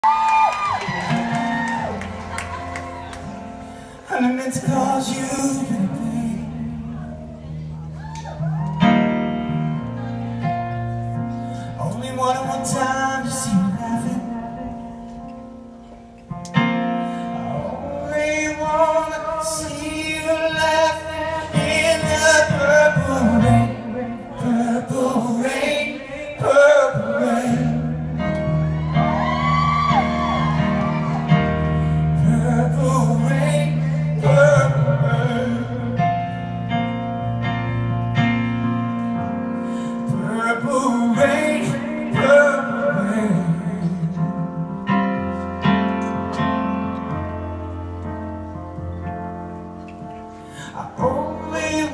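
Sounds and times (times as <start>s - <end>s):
piano chords: 0.0s - 51.9s
man singing a ballad: 3.8s - 7.3s, 11.6s - 15.2s, 17.2s - 28.6s, 31.8s - 36.7s, 39.8s - 45.1s, 50.3s - 51.9s.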